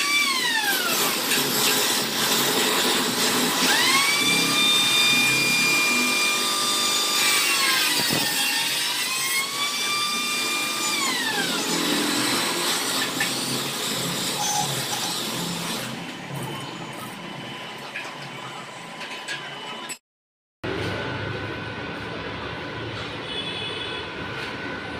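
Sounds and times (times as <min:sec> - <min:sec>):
angle grinder whining: 0:00.0 - 0:17.3.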